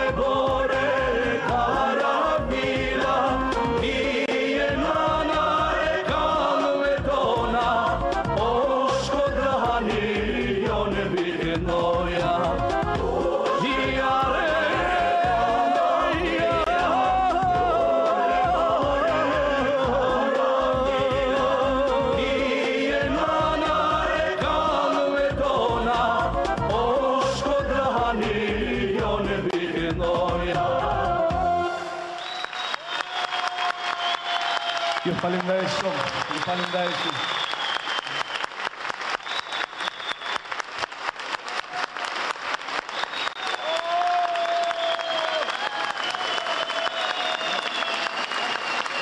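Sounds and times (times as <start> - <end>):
audience clapping in rhythm: 0.0 - 31.1, 32.2 - 49.0
man singing with vibrato: 0.0 - 32.0.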